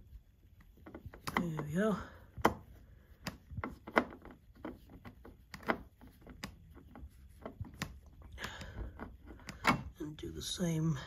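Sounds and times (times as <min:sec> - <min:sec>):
screwdriver clicking and scraping: 0:02.4 - 0:10.0.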